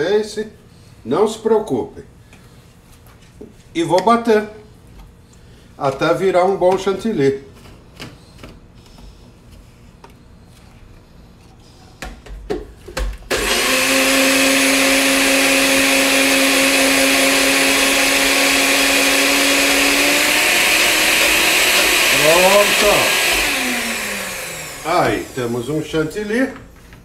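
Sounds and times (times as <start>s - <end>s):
blender motor whining: 13.3s - 25.9s.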